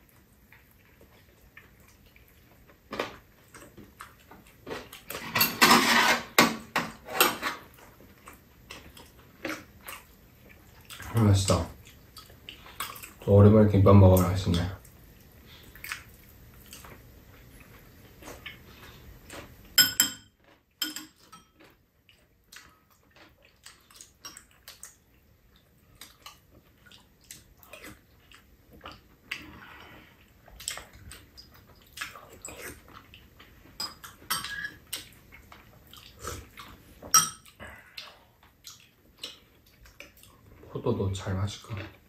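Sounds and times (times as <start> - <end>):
utensils clinking against bowls: 5.2 - 7.6, 19.8 - 21.6, 33.8 - 34.8, 37.1 - 37.5.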